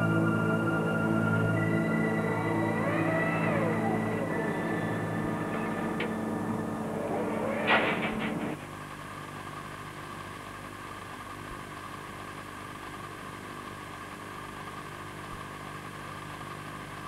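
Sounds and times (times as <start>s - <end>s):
steady low drone: 0.0s - 8.7s.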